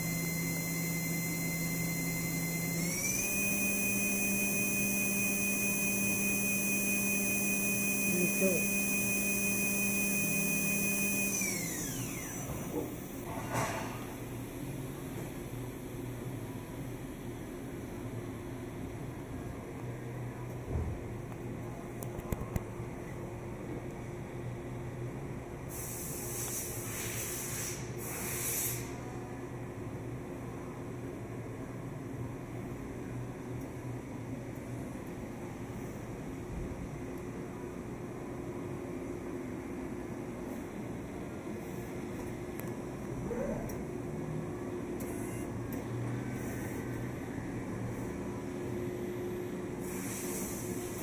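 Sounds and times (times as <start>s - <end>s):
machine shop equipment hum: 0.0s - 51.0s
hiss: 25.7s - 29.0s, 49.8s - 51.0s.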